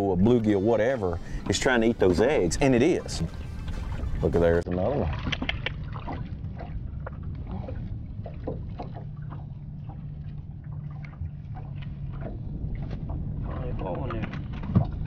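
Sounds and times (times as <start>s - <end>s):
steady low hum: 0.0s - 15.0s
fish splashing at water surface: 3.4s - 13.2s.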